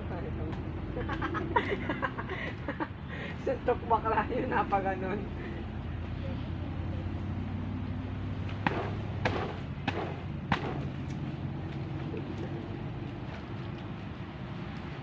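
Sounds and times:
steady low hum: 0.0s - 15.0s
sharp knocks: 8.6s - 11.0s.

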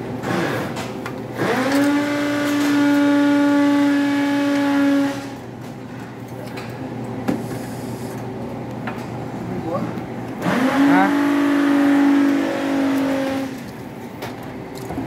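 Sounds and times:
electric motor whine: 10.4s - 13.7s.

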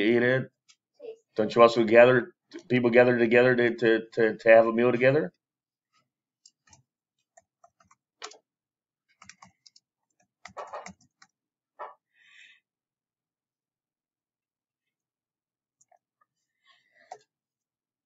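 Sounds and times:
stylus scratchy scrape: 10.5s - 10.9s.

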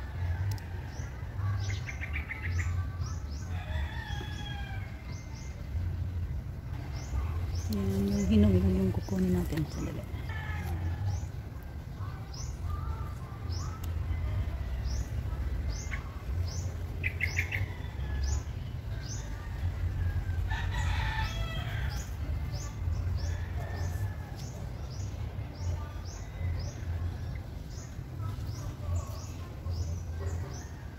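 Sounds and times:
rooster crowing: 3.5s - 5.0s.

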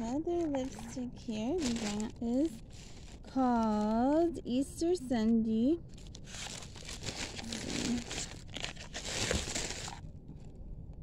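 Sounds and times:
packaging crinkling: 0.3s - 4.0s, 5.9s - 10.1s.

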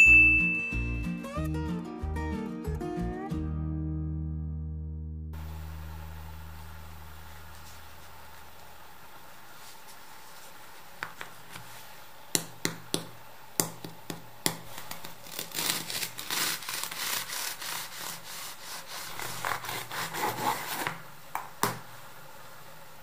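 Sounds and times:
knife sawing through crusty bun: 15.2s - 21.0s.

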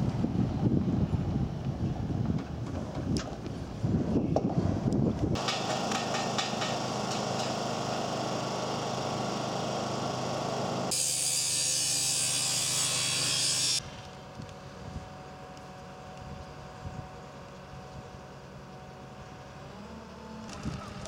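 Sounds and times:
power tool running: 5.4s - 13.8s.

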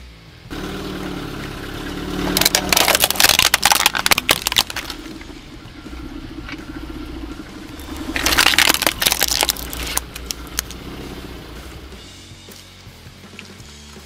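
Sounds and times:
low hum: 0.5s - 12.6s
plastic cracking and snapping: 2.4s - 5.0s, 8.1s - 10.8s.

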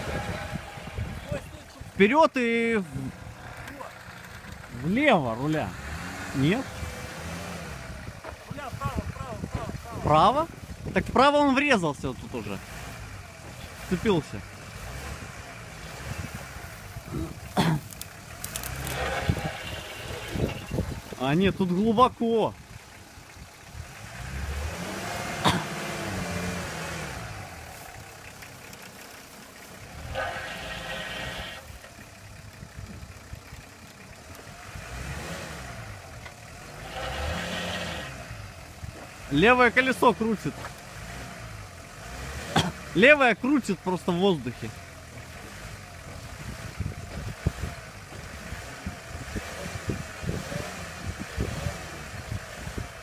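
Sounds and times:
wind buffeting microphone: 0.0s - 2.0s, 19.2s - 21.2s
engine revving: 0.0s - 53.0s.

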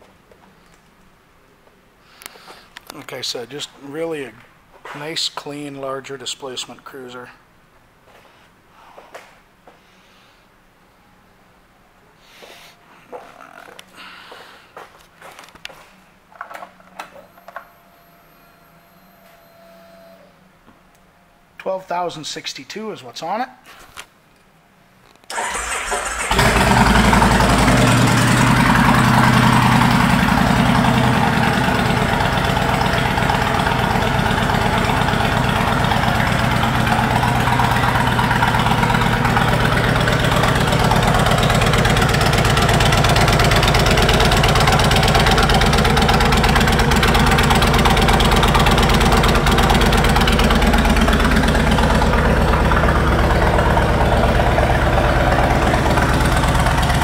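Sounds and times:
electric starter cranking: 25.3s - 30.4s
motorcycle engine idling: 26.1s - 57.0s.

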